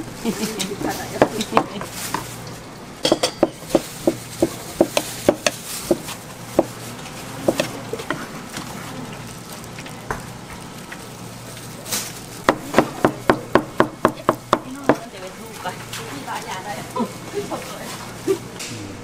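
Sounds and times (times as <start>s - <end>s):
knife chopping on cutting board: 3.1s - 6.8s.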